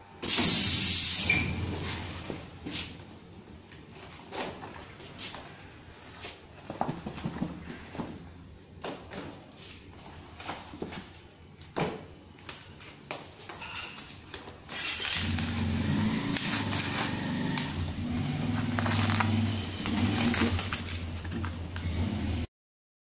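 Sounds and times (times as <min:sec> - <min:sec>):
plastic crackling and rustling: 0:18.4 - 0:21.8.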